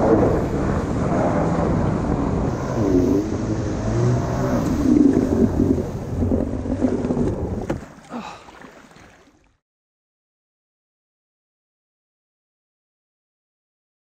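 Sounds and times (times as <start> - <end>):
jet ski engine running: 0.0 - 7.9.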